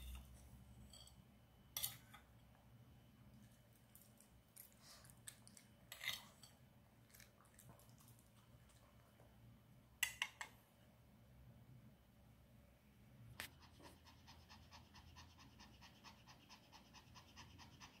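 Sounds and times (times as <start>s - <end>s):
dog panting: 13.6s - 18.0s.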